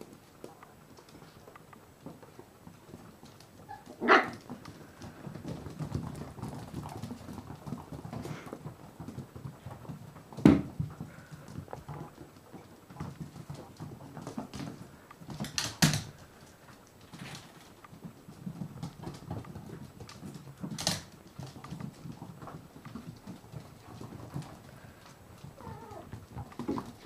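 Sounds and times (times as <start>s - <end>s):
dog barks: 3.7s - 4.4s.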